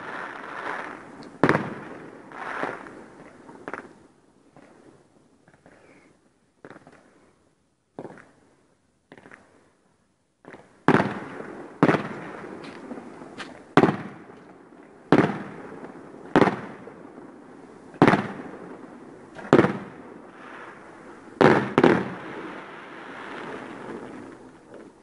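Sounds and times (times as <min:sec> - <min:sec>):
fireworks bangs echoing: 0:00.0 - 0:03.9, 0:10.4 - 0:25.0.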